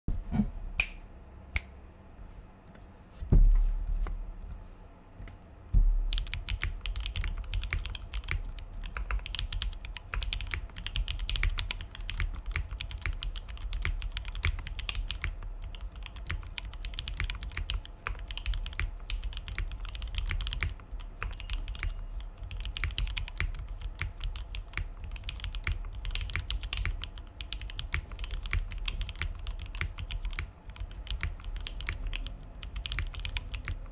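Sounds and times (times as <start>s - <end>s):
heavy low thumps: 3.2s - 4.4s, 5.7s - 6.2s
mechanical keyboard typing: 6.1s - 33.9s.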